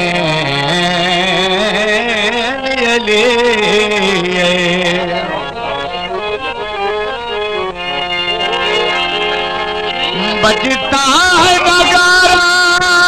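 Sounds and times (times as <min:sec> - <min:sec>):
harmonium melody: 0:00.0 - 0:13.0
person singing: 0:10.1 - 0:13.0.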